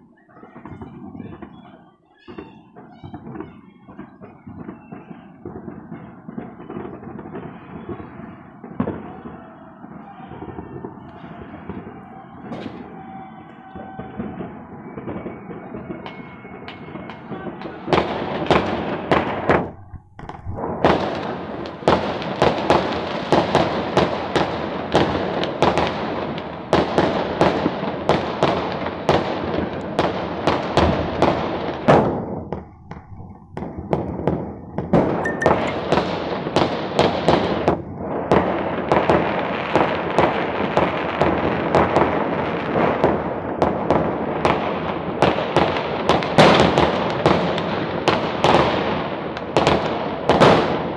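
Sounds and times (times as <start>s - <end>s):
fireworks and firecrackers crackling: 0.0s - 50.9s.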